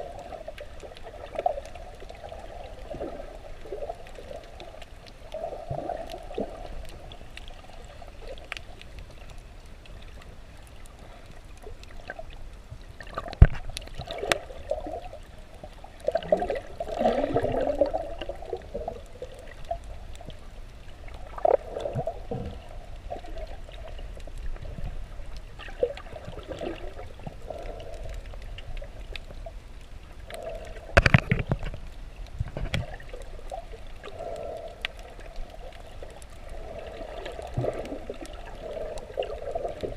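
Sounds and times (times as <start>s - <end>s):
muffled underwater sloshing: 0.0s - 39.9s.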